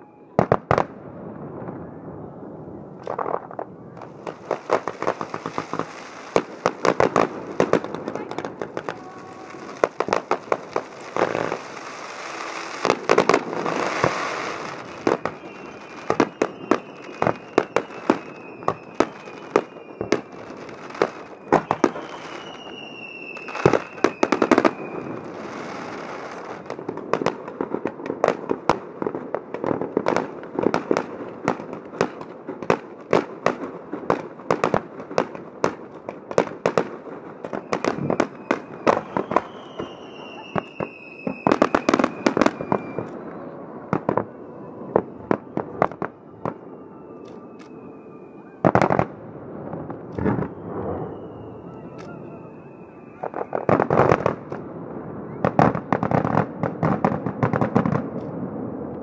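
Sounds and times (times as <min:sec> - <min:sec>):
fireworks bursting with sharp bangs: 0:00.0 - 0:59.0
firework whistles gliding down: 0:03.0 - 0:27.0, 0:37.2 - 0:56.5.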